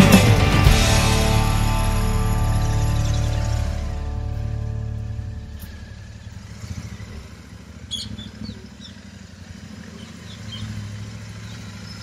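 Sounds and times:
motorcycle engine at low speed: 0.0s - 12.0s.

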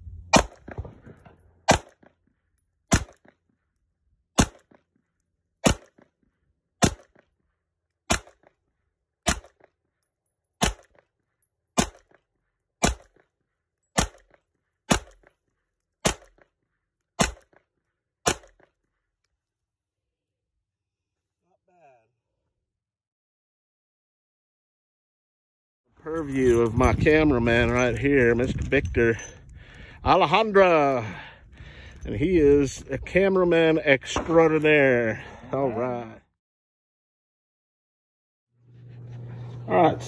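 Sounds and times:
pistol shots: 0.3s - 2.1s, 2.9s - 3.3s, 4.4s - 4.8s, 5.6s - 6.0s, 6.8s - 7.2s, 8.1s - 8.5s, 9.3s - 9.6s, 10.6s - 10.9s, 11.8s - 12.1s, 12.8s - 13.2s, 14.0s - 14.3s, 14.9s - 15.2s, 16.0s - 16.4s, 17.2s - 17.6s, 18.2s - 18.6s.

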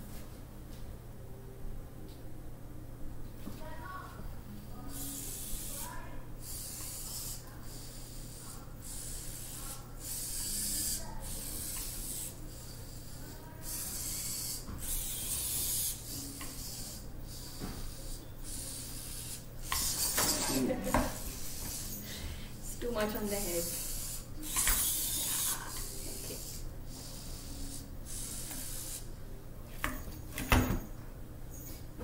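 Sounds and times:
robot servo motors whirring: 8.8s - 22.0s, 23.6s - 29.0s.

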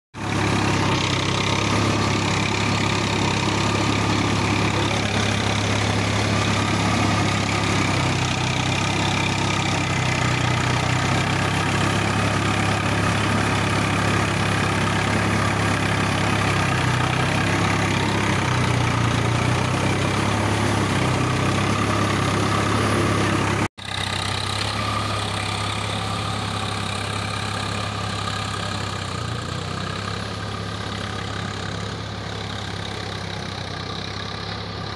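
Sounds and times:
tractor diesel engine running: 0.2s - 34.9s.

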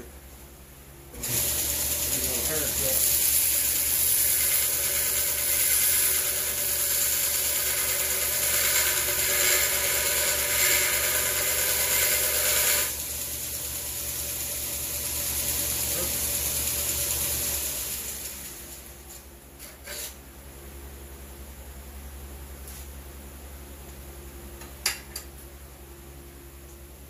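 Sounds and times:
small electric tool motor running: 1.2s - 18.9s.

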